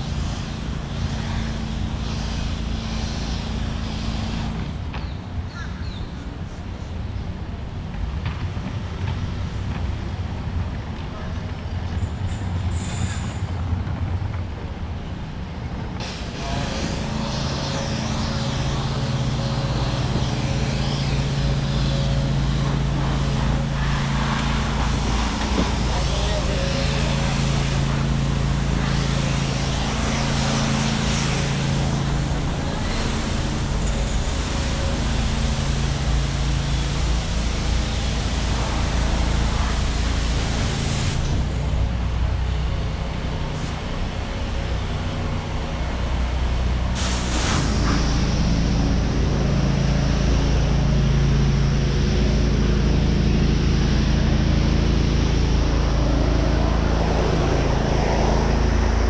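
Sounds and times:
cars passing on road: 0.0 - 59.0
steady low hum: 0.0 - 59.0.

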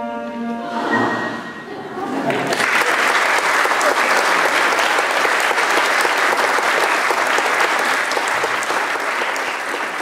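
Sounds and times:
audience applauding: 2.2 - 10.0.

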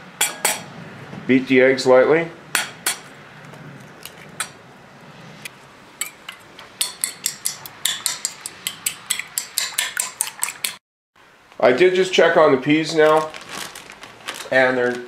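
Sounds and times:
fork beating eggs in bowl: 6.8 - 10.8.

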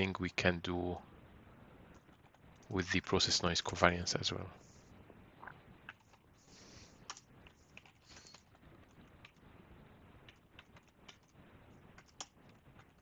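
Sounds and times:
keyboard typing clicks: 10.2 - 13.0.

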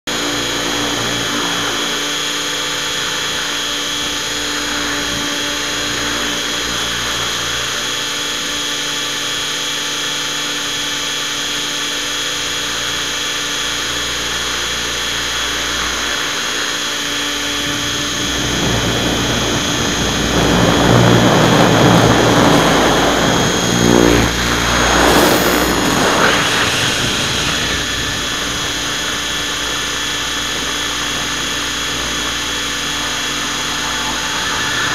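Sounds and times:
model helicopter motor whine: 0.1 - 34.9
rushing noise: 15.2 - 34.9.

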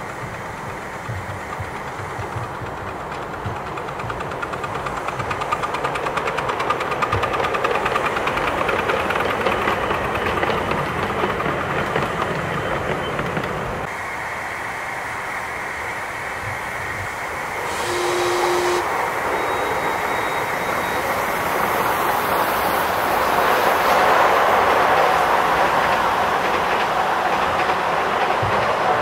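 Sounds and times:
steam locomotive hissing steam: 0.0 - 29.0
brief steady tone: 17.6 - 21.2.

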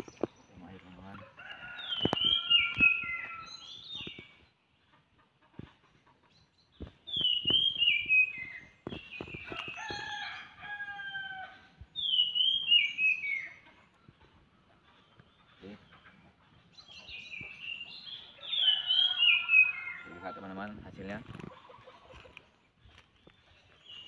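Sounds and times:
rooster crowing: 1.3 - 3.5, 9.7 - 11.6, 18.6 - 20.5.

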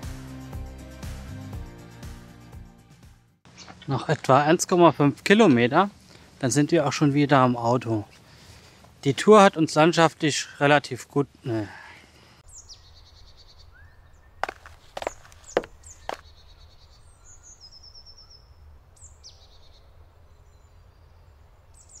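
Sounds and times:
birds chirping and trilling: 12.1 - 22.0
sharp taps: 14.4 - 16.2.

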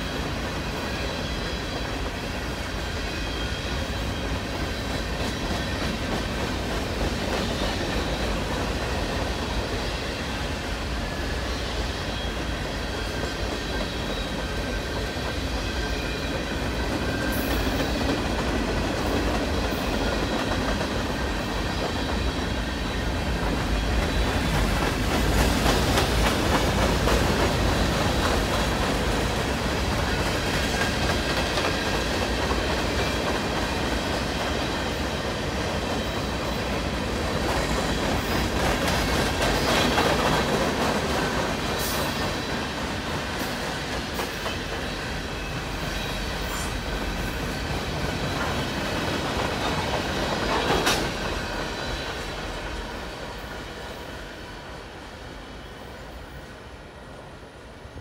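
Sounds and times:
rhythmic clicking over rail joints: 0.0 - 56.3
steel wheels rumbling on rail: 0.0 - 58.0
faint high wheel squeal: 2.8 - 5.8, 11.0 - 18.0.

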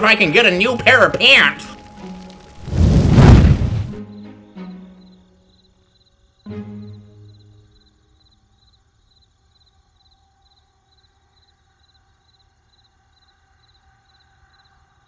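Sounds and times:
faint cricket chirping: 4.0 - 15.0.

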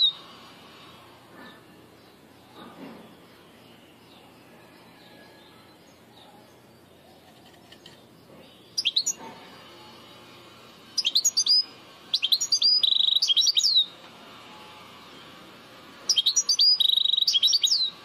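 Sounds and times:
goldfinch twittering song: 5.0 - 9.3, 10.9 - 14.0, 16.1 - 18.0.

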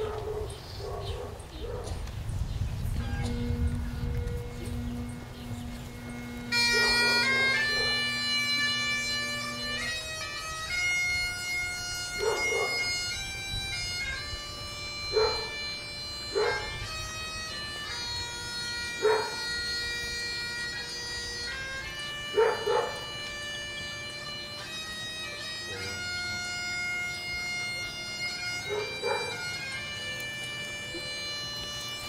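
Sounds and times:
dog barking: 0.0 - 2.0, 6.7 - 8.1, 12.2 - 12.8, 15.1 - 15.6, 16.3 - 16.7, 19.0 - 19.4, 22.3 - 23.0, 28.7 - 29.4
bagpipes playing slow tune: 0.0 - 32.0.

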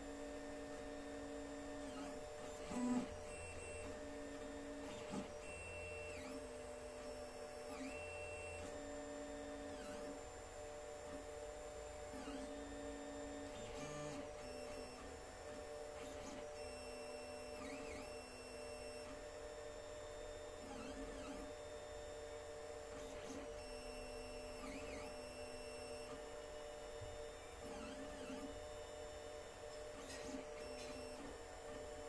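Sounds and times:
steady printer hum: 0.0 - 32.0.

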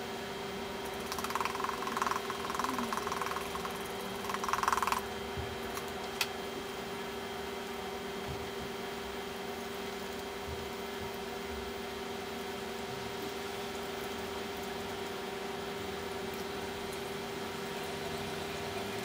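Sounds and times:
steady hum: 0.0 - 19.0
salt pouring patter: 0.9 - 5.0.

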